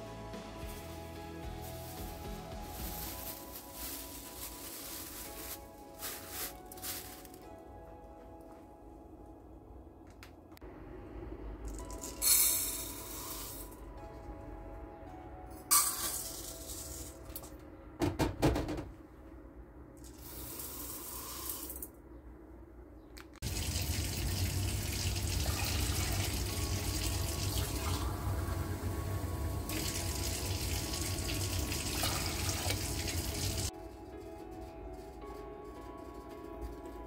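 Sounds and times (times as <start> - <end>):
water pouring into metal pot: 23.4 - 28.4, 29.6 - 33.7.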